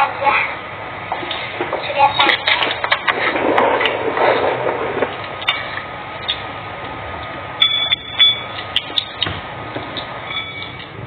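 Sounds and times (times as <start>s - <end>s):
steady background hum: 0.0s - 11.0s
spoon scraping with squeak: 10.2s - 10.8s.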